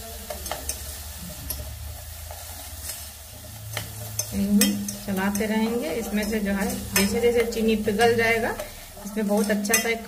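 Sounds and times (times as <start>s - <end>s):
metal spoon stirring sugar in pan: 0.0s - 10.0s
spoon clinking against pan: 3.7s - 8.7s, 9.4s - 10.0s.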